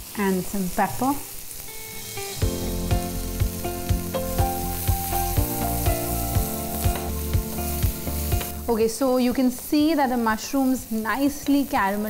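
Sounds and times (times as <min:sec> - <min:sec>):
vegetables sizzling in a pan: 0:00.0 - 0:12.0
background music with steady beat: 0:02.0 - 0:10.1.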